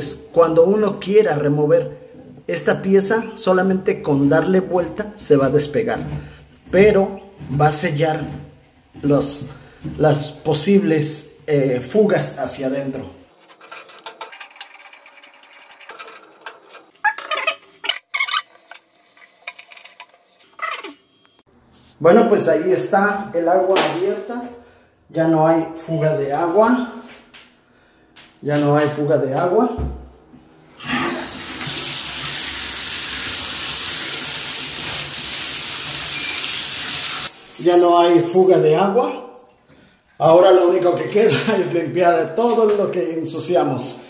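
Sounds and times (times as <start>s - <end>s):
water running into bathtub: 13.6s - 17.0s, 30.8s - 38.6s.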